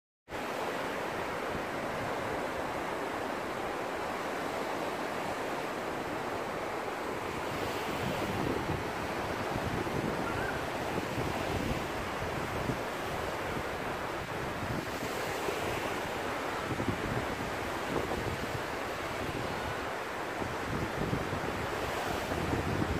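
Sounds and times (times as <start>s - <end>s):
sea waves washing on beach: 0.3s - 22.9s
wind buffeting microphone: 6.0s - 22.9s.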